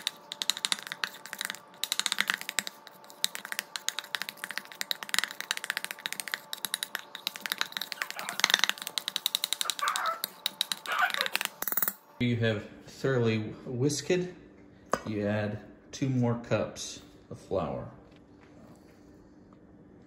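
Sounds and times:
whisk clicking against metal bowl: 0.0 - 11.6.

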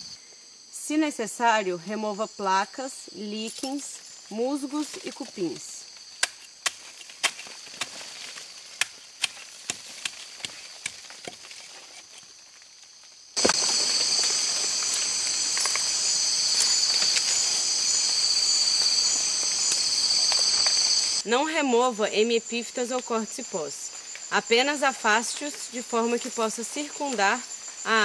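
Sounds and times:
shrill insect chorus: 0.0 - 28.0
machete scraping tree bark: 6.2 - 12.4.

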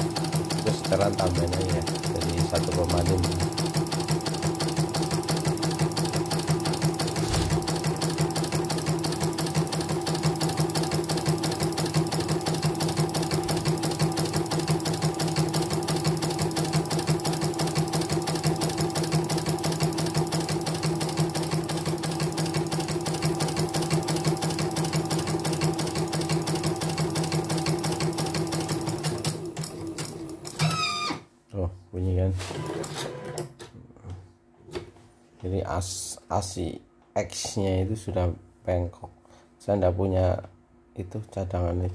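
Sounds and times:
hoop moving noise: 7.2 - 7.7.

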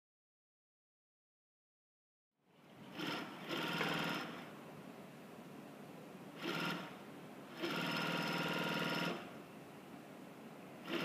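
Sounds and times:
faint steady hum: 2.4 - 11.0
sewing machine stitching: 2.9 - 4.5, 6.4 - 9.4.

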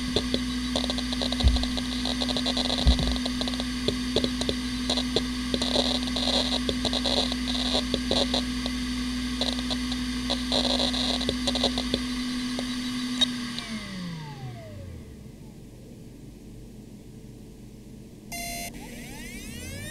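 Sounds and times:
hard drive head-seek clicking: 0.0 - 13.6
hard drive spinning down: 0.0 - 15.4, 18.3 - 19.9
hard drive whine: 0.0 - 19.9.

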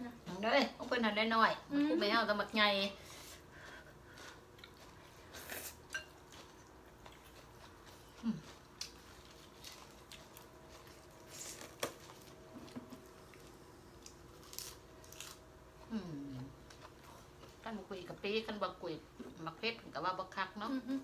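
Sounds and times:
chopsticks clinking on ceramic bowls: 5.9 - 6.2.

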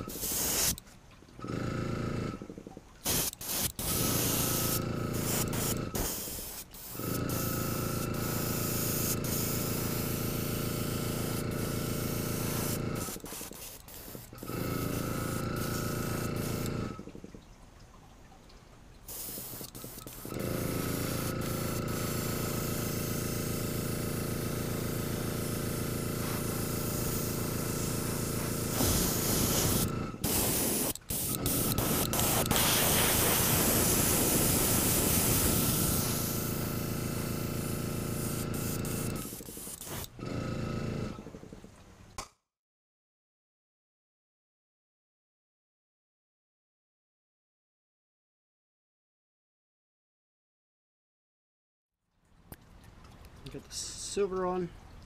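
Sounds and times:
air compressor humming: 0.0 - 0.8, 1.4 - 17.1, 19.1 - 41.7
airbrush spraying hiss: 0.0 - 0.8, 3.0 - 16.7, 19.1 - 23.8, 24.4 - 40.2.

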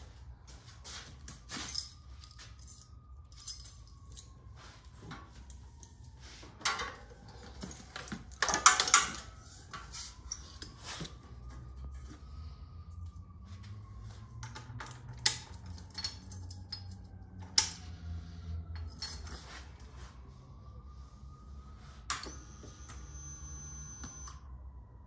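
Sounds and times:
keys jangling: 14.8 - 17.8, 18.8 - 19.6.

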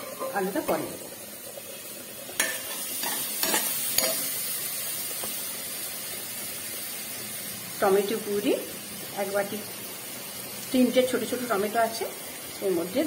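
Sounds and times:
metal spatula scraping a pot: 0.0 - 0.6, 2.4 - 4.3
onions sizzling in hot oil: 0.0 - 13.0.

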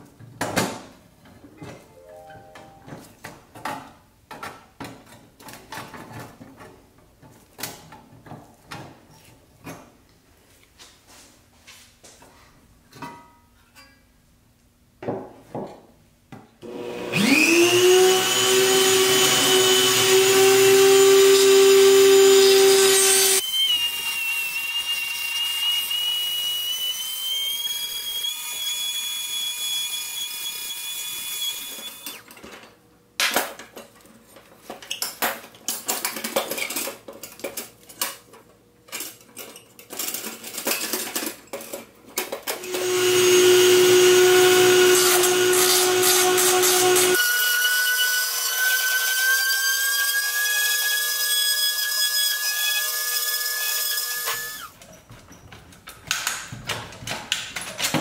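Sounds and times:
rotary tool whining: 17.0 - 29.0, 30.4 - 32.2, 42.6 - 47.5, 49.5 - 54.8
rotary tool grinding metal: 17.2 - 23.4, 42.6 - 54.8.

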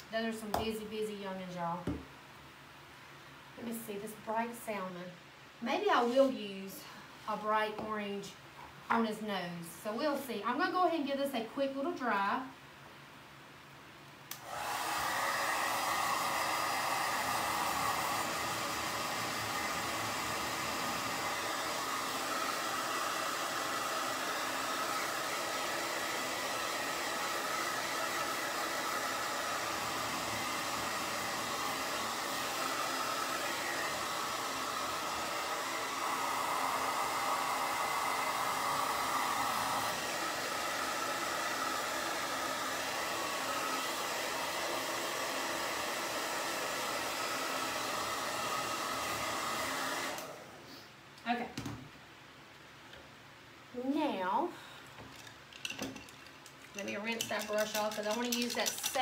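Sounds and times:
hot-air blower running: 14.3 - 50.7.

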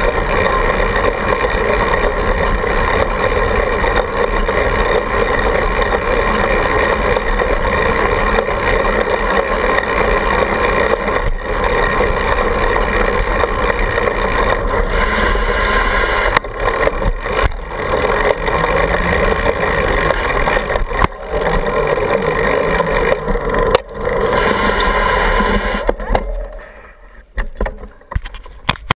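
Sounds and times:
wind and tyre noise: 0.0 - 29.0.

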